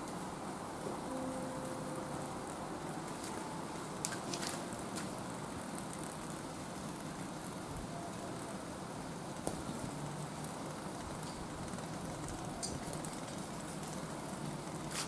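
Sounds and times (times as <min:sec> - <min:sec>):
steady hiss of flame: 0:00.0 - 0:15.0
charcoal crackle: 0:01.4 - 0:15.0.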